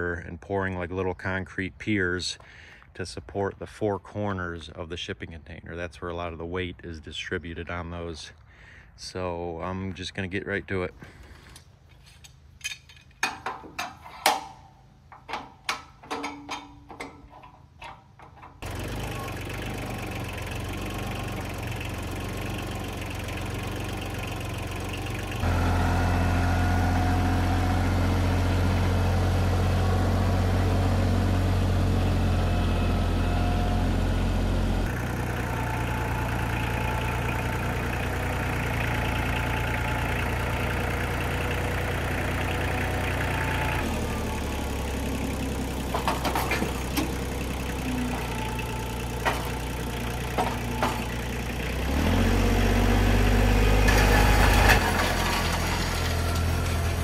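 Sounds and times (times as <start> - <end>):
metal clanks and knocks: 11.9 - 18.6, 45.8 - 47.4, 48.1 - 51.3
tractor diesel engine running: 13.2 - 57.0.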